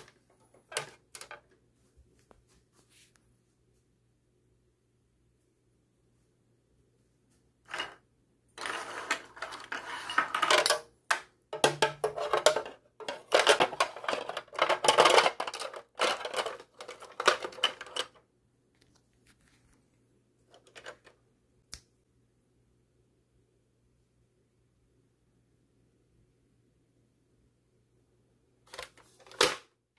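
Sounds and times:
plastic ammo belt rattling: 11.6 - 18.2.

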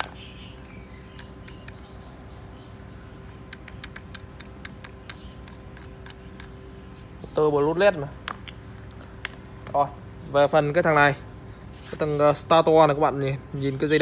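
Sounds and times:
small motor parts clicking: 0.0 - 6.6
faint hum: 0.0 - 14.0.

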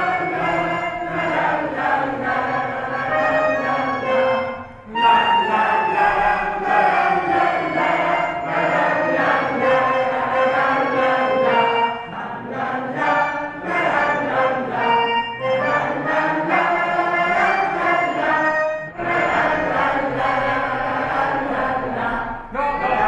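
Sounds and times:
group of voices chanting: 4.8 - 15.0, 15.6 - 23.0.

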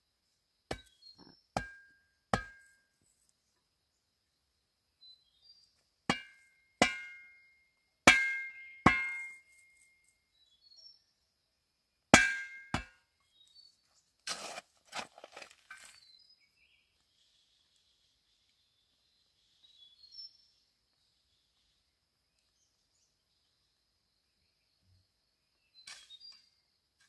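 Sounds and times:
faint bird chirps: 0.0 - 5.9, 9.5 - 11.6, 15.8 - 27.0
tool striking wood: 1.6 - 2.7, 6.1 - 7.2, 8.1 - 9.4, 12.2 - 13.0.

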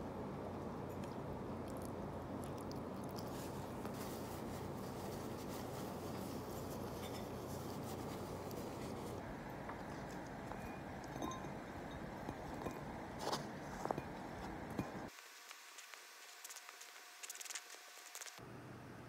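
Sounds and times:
low hum and hiss: 0.0 - 19.0
paper napkin rustling and crinkling: 3.1 - 9.2.

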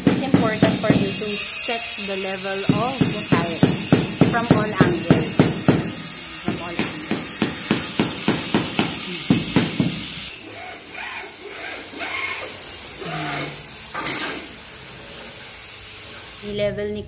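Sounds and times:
rubber mallet knocking on tile: 0.0 - 1.2, 2.7 - 10.1.

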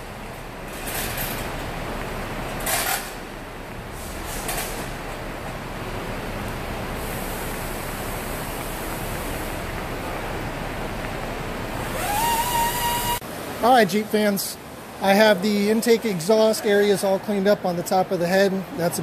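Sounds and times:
compressed air hissing: 11.8 - 13.2.

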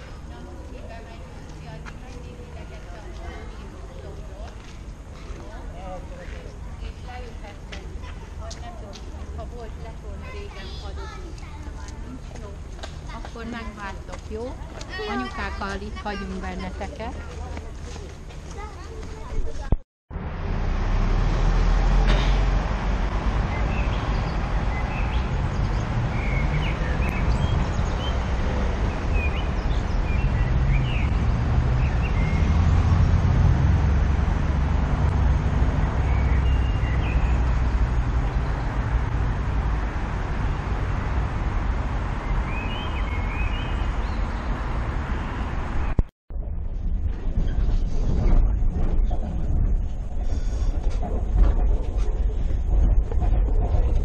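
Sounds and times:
low street rumble: 0.0 - 54.0
bird chirps: 36.1 - 37.5, 42.3 - 44.5.

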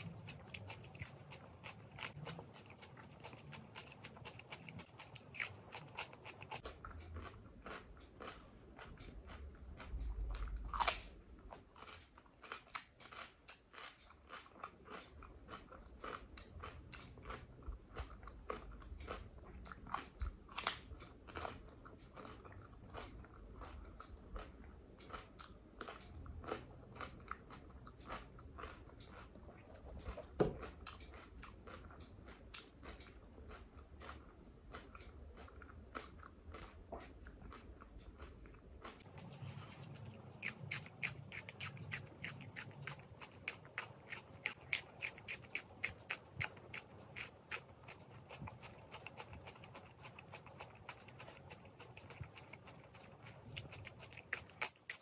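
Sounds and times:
crunching cucumber bites: 0.0 - 29.3, 30.0 - 55.0
wet chewing: 0.0 - 55.0.

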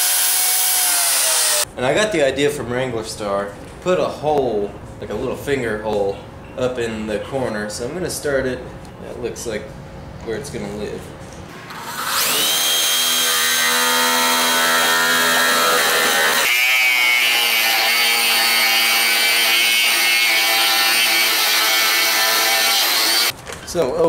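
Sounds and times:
electric drill boring into wood: 0.0 - 1.6, 11.7 - 23.3.

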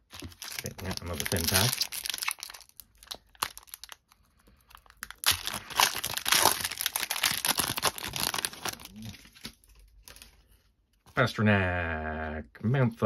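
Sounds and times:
foil wrapper tearing and crinkling: 0.1 - 10.2.

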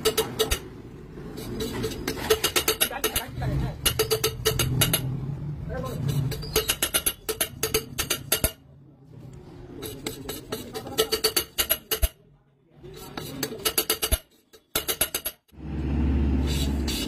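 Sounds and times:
rapid metallic tapping: 1.7 - 5.1, 5.9 - 8.6.

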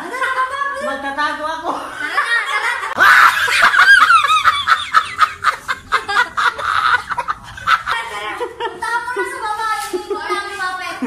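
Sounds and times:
loud laughter: 1.9 - 9.4.

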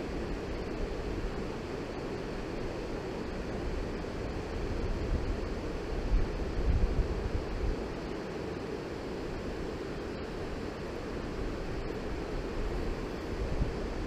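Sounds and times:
wind buffeting microphone: 13.2 - 14.0.

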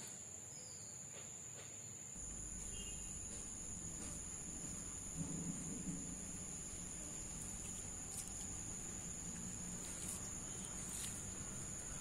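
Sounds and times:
insects chirring: 0.5 - 12.0
faint ticks from hearth: 1.0 - 12.0.

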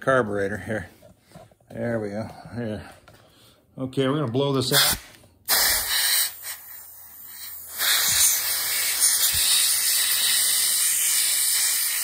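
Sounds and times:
air blow gun hissing: 4.7 - 12.0.

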